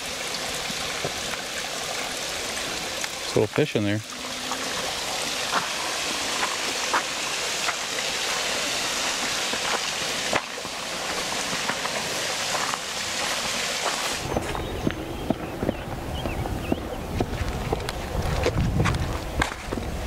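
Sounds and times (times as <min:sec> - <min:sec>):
footsteps on a woodland trail: 0:04.5 - 0:20.0
steady rushing hiss: 0:04.6 - 0:14.8.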